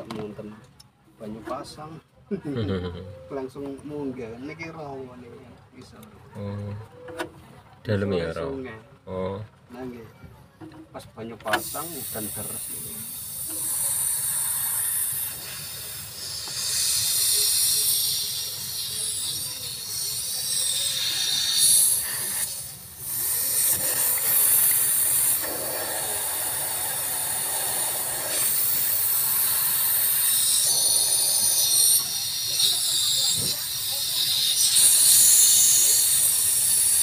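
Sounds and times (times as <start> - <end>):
refrigerant gas hissing: 11.4 - 37.0.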